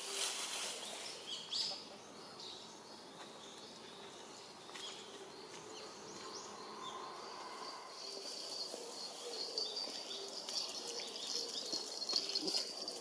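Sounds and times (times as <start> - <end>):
steady background hiss: 0.0 - 6.1
small birds chirping: 0.7 - 13.0.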